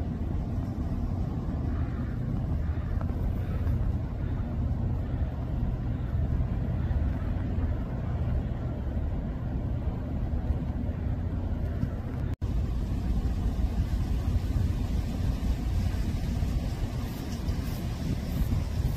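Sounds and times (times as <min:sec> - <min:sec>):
steady low rumble: 0:00.0 - 0:18.9
faint hiss: 0:12.5 - 0:18.9.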